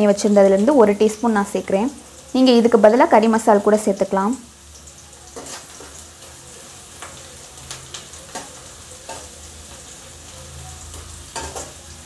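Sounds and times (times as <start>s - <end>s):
onions sizzling in hot oil: 0.0s - 12.0s
metal spoon tapping and scraping pan: 5.4s - 6.0s, 7.0s - 9.4s, 10.9s - 11.8s.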